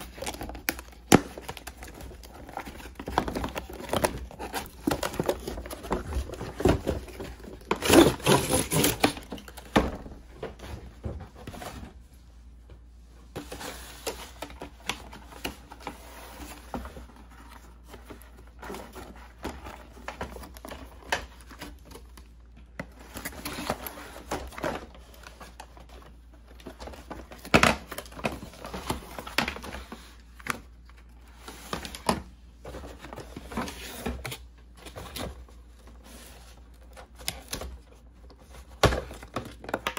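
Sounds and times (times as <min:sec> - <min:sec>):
cardboard box rustling and scraping: 0:01.4 - 0:09.6.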